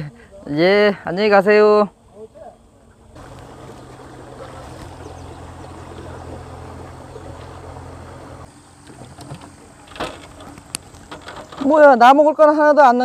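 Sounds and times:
outboard motor running: 0:03.2 - 0:11.3.

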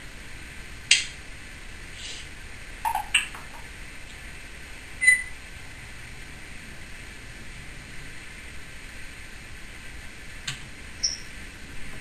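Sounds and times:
parrot clicking: 0:02.9 - 0:03.6.

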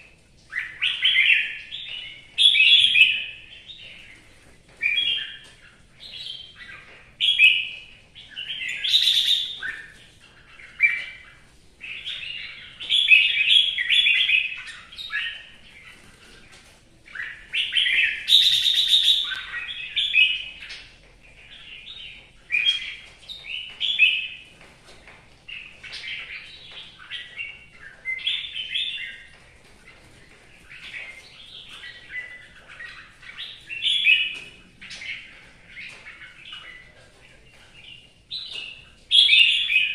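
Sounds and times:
bird singing warbled phrases: 0:00.0 - 0:24.6, 0:25.4 - 0:39.9.

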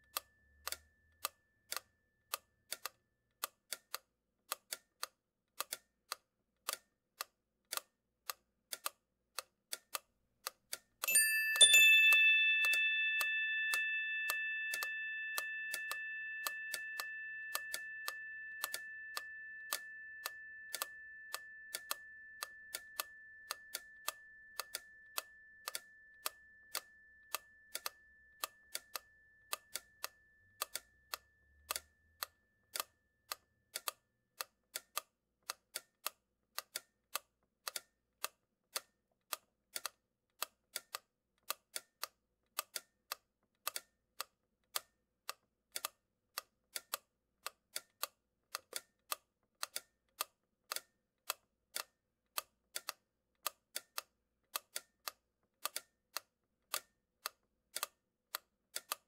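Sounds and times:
regular ticking: 0:00.1 - 0:59.0
bell tone ringing: 0:11.1 - 0:27.2.

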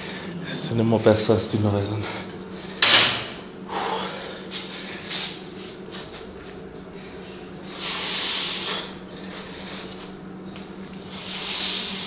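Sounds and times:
low hum: 0:00.0 - 0:12.0
forceful hissing exhale: 0:07.6 - 0:09.0, 0:11.1 - 0:12.0.

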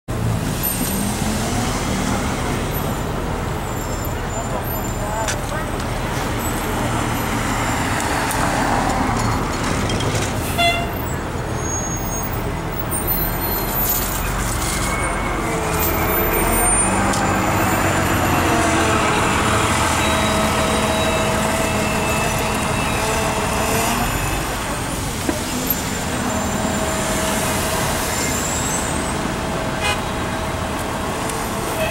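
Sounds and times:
diesel buses pulling away: 0:00.1 - 0:31.9
street traffic: 0:00.1 - 0:31.9
bus horn toot: 0:10.4 - 0:12.3, 0:16.1 - 0:24.2, 0:29.8 - 0:30.2.

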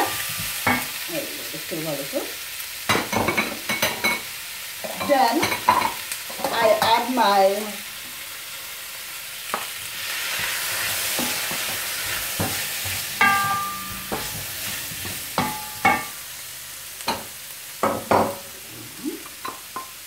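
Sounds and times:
vegetables sizzling in a pan: 0:00.0 - 0:20.0
wooden spoon knocking on pan: 0:12.4 - 0:16.2, 0:17.1 - 0:18.4.

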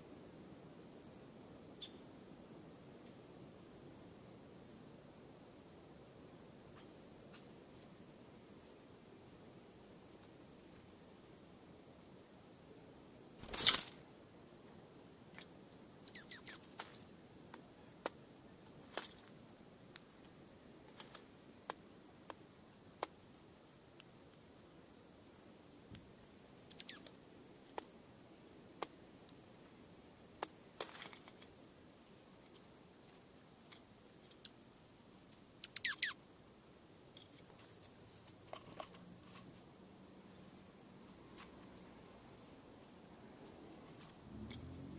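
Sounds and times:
birds hopping in branches: 0:13.4 - 0:14.0.

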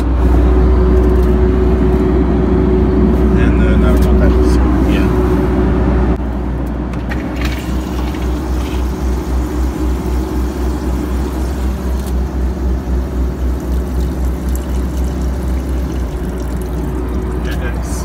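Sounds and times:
airliner cabin drone: 0:00.0 - 0:18.0
tap water running into sink: 0:12.9 - 0:17.6.

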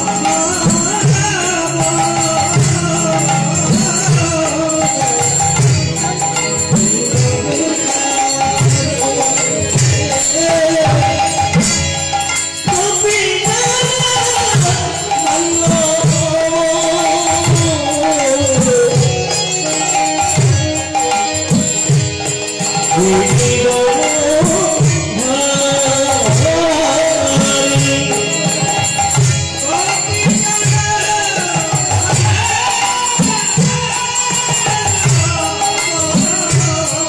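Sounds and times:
devotional singing: 0:00.0 - 0:37.0.

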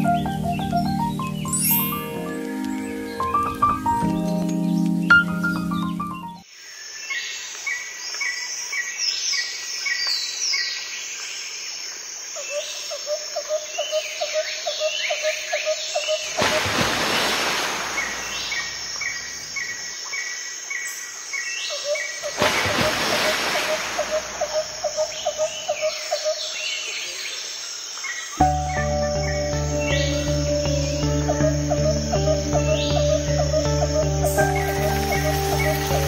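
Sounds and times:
birds chirping and whistling: 0:00.0 - 0:06.4, 0:28.4 - 0:36.0.

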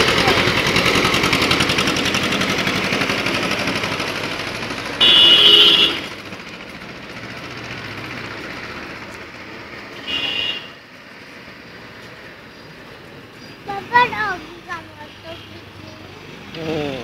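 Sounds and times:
tractor engine chugging: 0:00.0 - 0:10.5
steady engine hum: 0:00.0 - 0:17.0
vehicle horn: 0:05.0 - 0:06.2, 0:09.9 - 0:10.8.

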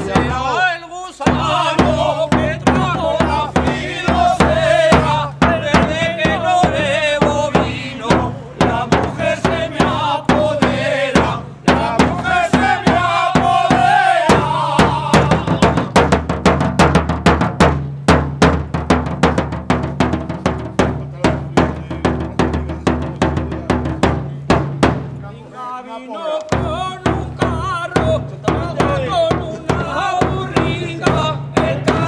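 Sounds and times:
bass drum beat: 0:00.0 - 0:00.6, 0:01.3 - 0:25.2, 0:26.5 - 0:32.0
men singing together: 0:00.0 - 0:16.1, 0:25.6 - 0:32.0.

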